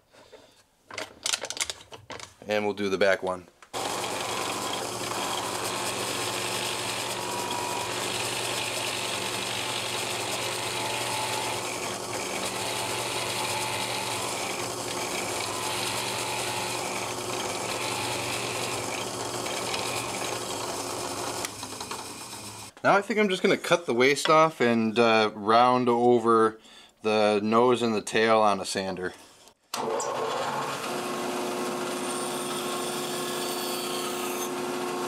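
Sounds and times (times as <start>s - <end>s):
drill bit boring into wood: 3.8s - 22.7s
drill press humming: 3.8s - 22.8s.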